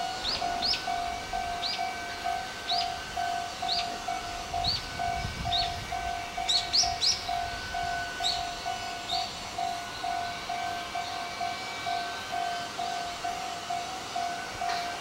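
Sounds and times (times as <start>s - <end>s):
level-crossing warning bell: 0.0s - 15.0s
bird chirping: 6.5s - 7.3s.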